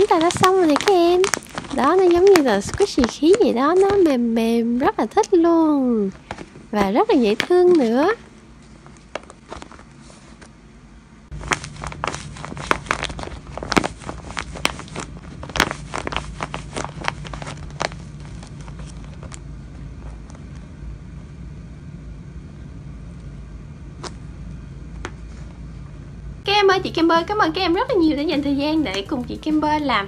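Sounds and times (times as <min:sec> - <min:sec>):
tape and paper crinkling: 0:00.0 - 0:05.4, 0:06.1 - 0:10.5, 0:11.3 - 0:20.7
low steady hum: 0:00.0 - 0:30.0.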